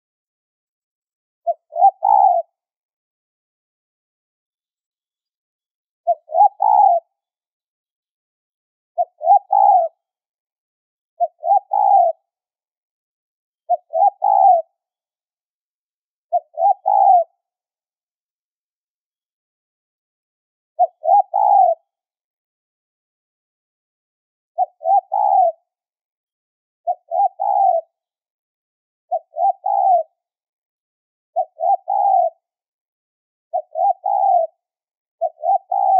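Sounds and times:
dove cooing: 1.5 - 2.6, 6.0 - 7.2, 9.0 - 10.0, 11.2 - 12.2, 13.7 - 14.7, 16.3 - 17.4, 20.8 - 21.9, 24.6 - 25.7, 26.8 - 28.0, 29.1 - 30.2, 31.4 - 32.5, 33.5 - 35.9.

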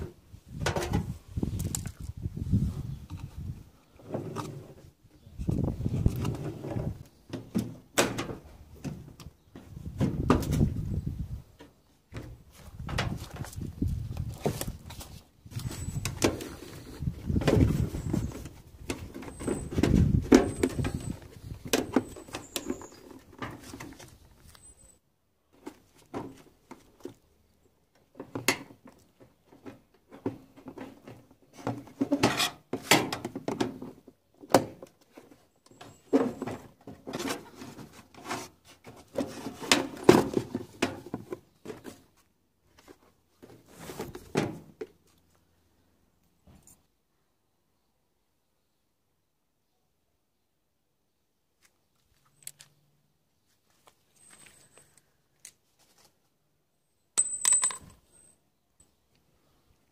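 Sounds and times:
parts and tools clattering: 17.5 - 24.9, 57.2 - 58.4.

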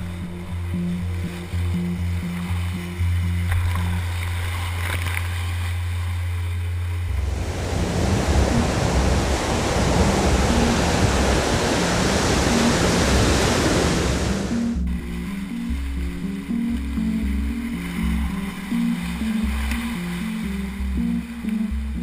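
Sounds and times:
low background music: 0.0 - 22.0
ocean surf breaking: 7.0 - 21.8.

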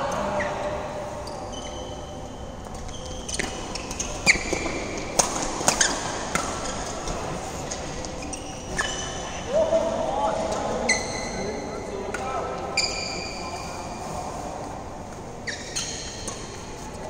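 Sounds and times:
sneakers squeaking on court: 0.3 - 5.0, 8.1 - 9.5, 15.3 - 16.8.

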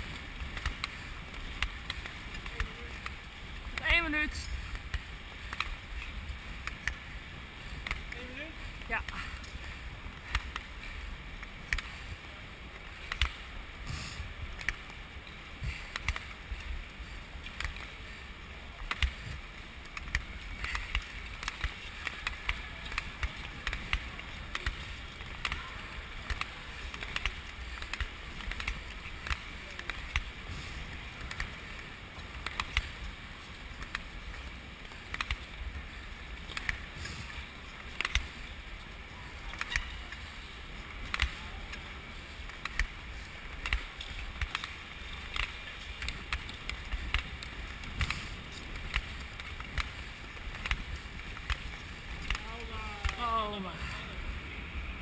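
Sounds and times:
skate blades scraping ice: 0.0 - 53.2
sharp clicks: 35.0 - 35.5, 39.5 - 40.0.

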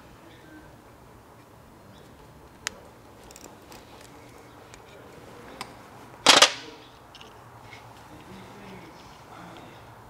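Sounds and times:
crimping pliers clicking: 2.6 - 4.8.

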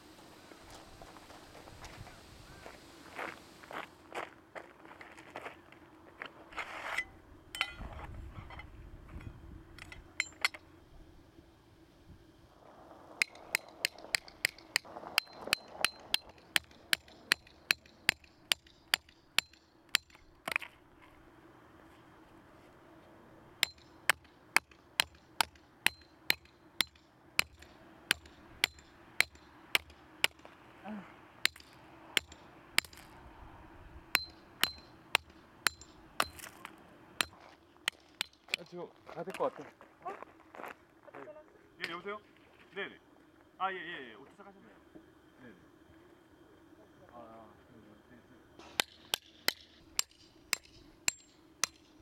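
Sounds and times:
hammer striking metal tent pegs: 7.6 - 7.9, 23.6 - 30.4.

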